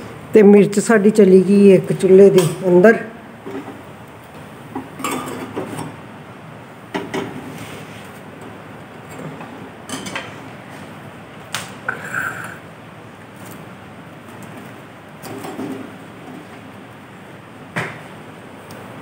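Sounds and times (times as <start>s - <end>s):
gas burner hissing: 5.8s - 13.4s.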